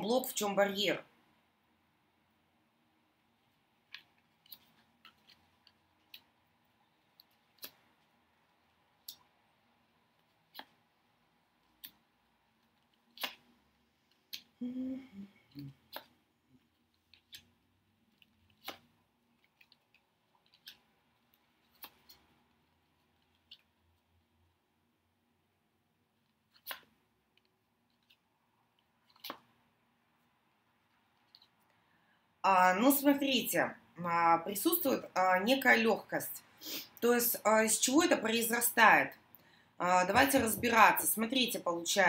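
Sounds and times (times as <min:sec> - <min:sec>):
person humming: 0:14.6 - 0:15.8.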